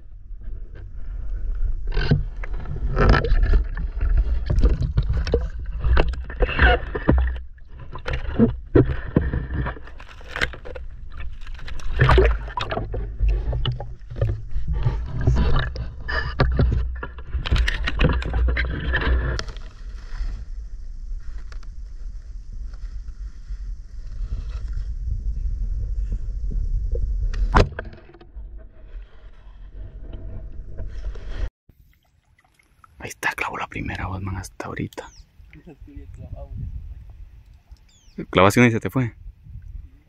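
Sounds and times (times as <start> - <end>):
low rumble: 0.0 - 31.5
water splashing and gurgling: 1.9 - 24.8, 31.7 - 33.5.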